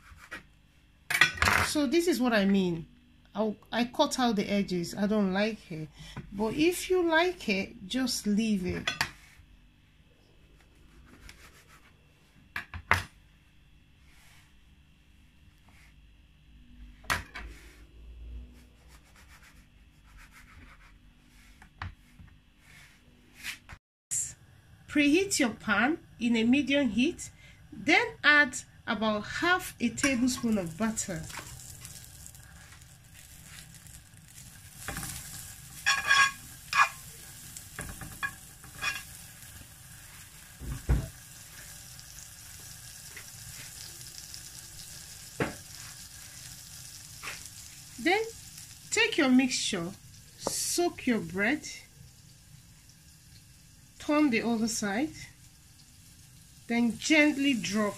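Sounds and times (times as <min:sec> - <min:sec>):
butter sizzling in a frying pan: 0:29.8 - 0:57.9
metal spoon scraping a pan: 0:34.8 - 0:39.4.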